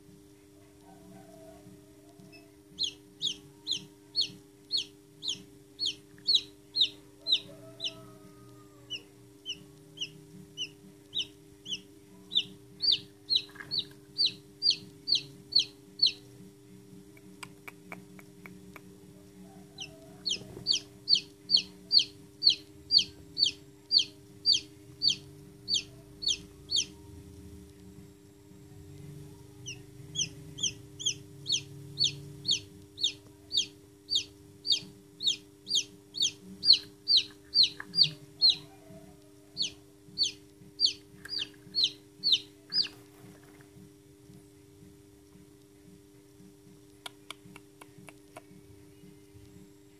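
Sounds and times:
low steady hum: 0.0 - 49.9
chick peeping: 0.8 - 16.3, 19.5 - 27.1, 29.6 - 43.7.

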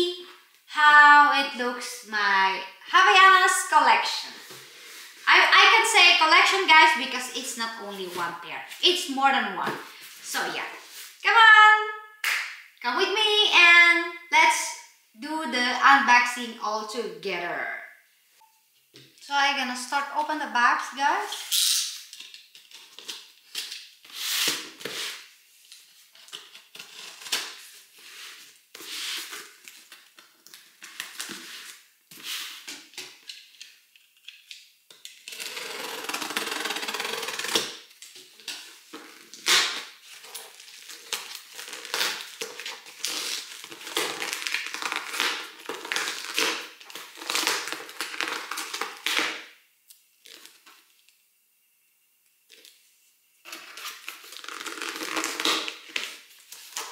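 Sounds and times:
packing tape peeled off cardboard: 21.3 - 49.4, 53.5 - 56.9.

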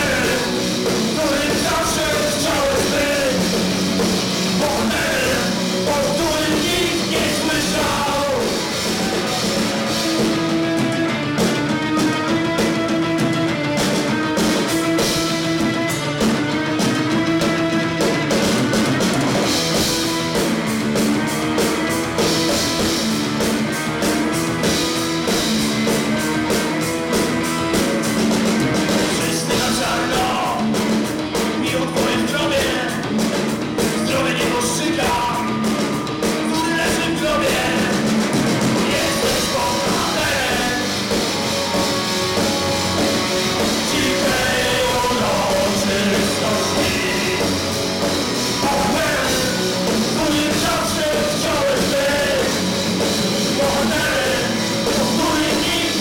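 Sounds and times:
drum kit: 0.0 - 56.0
electric bass guitar: 0.0 - 56.0
electric guitar: 0.0 - 56.0.

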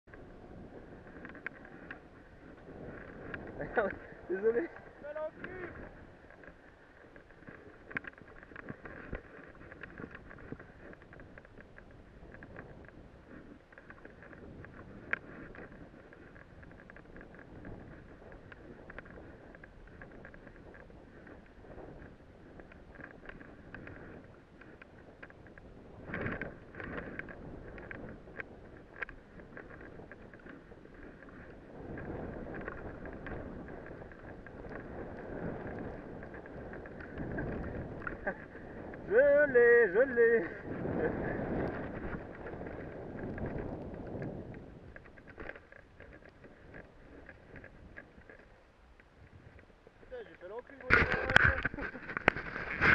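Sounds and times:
wind on the microphone: 0.0 - 52.9
snow scraping hiss under rider: 39.9 - 44.6.

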